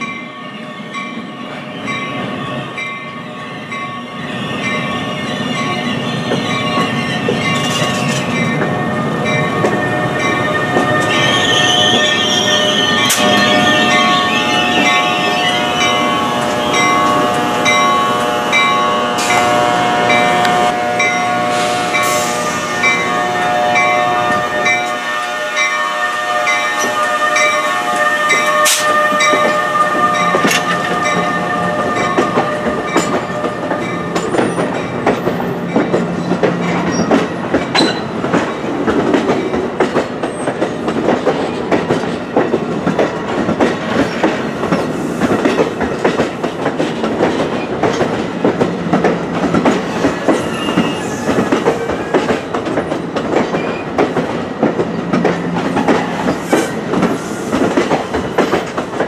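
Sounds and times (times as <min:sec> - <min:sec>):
train wheels clickety-clack: 0:05.5 - 0:19.6, 0:27.9 - 0:59.0.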